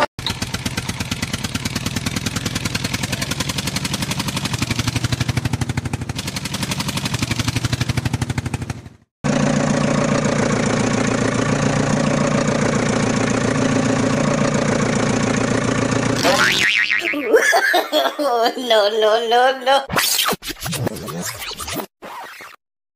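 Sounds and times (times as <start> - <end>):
engine idling: 0.0 - 16.7
engine chugging: 0.0 - 17.5.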